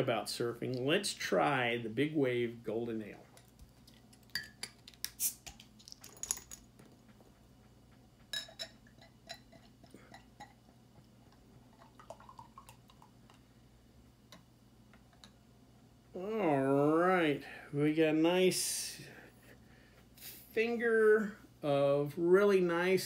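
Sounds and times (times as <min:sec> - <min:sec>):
glass bottle clinking: 0:04.4 - 0:04.7, 0:08.3 - 0:10.6
beer fizzing: 0:09.0 - 0:13.5
beer pouring into glass: 0:11.7 - 0:13.2.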